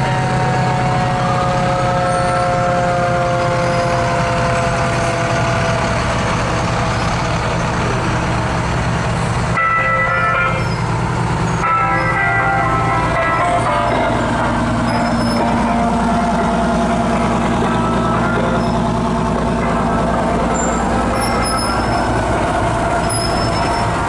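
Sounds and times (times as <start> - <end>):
fire engine motors running: 0.0 - 24.0
vehicle horn: 9.6 - 10.8.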